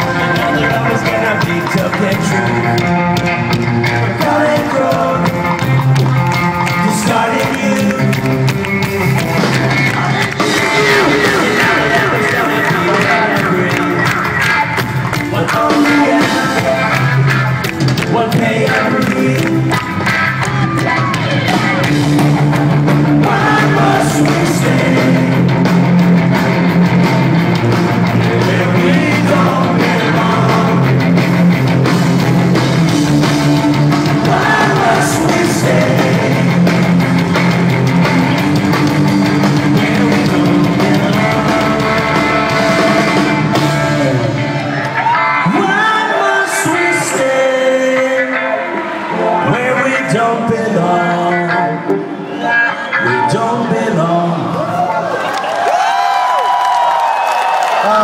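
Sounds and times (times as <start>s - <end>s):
person singing: 0.0s - 6.0s, 6.6s - 8.6s, 9.7s - 19.9s, 23.2s - 25.5s, 28.2s - 31.2s, 34.0s - 37.0s, 39.5s - 55.0s
punk rock band playing live: 0.0s - 58.0s.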